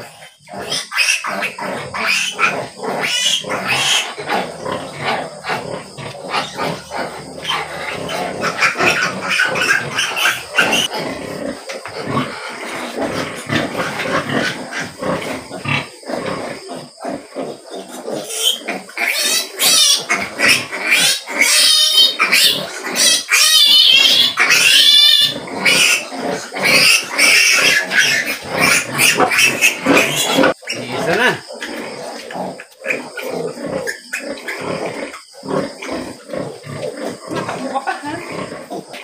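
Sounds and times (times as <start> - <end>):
piglets squealing: 0.0 - 10.9, 17.9 - 37.6.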